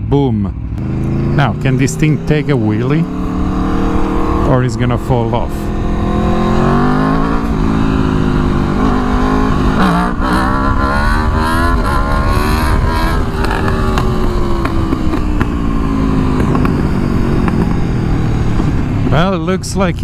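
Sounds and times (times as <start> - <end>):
motorcycle engine revving hard: 0.8 - 19.4
wind noise on microphone: 5.5 - 19.4.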